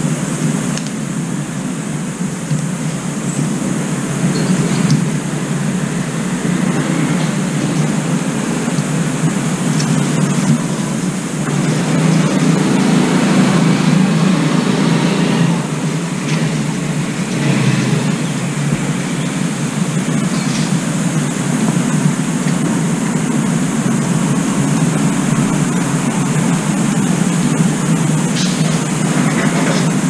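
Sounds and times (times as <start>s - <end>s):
low rumbling background noise: 0.0s - 30.0s.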